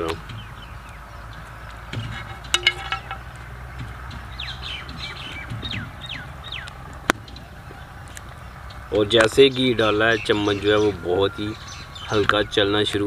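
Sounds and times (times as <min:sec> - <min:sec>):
whistled bird notes: 0:08.7 - 0:13.0.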